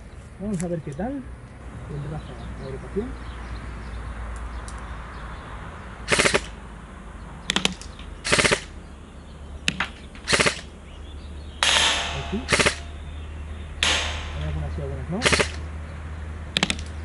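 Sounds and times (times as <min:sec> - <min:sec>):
airsoft rifle full-auto bursts: 0:06.1 - 0:06.6, 0:08.2 - 0:08.7, 0:10.2 - 0:10.7, 0:11.6 - 0:12.9, 0:15.2 - 0:15.6.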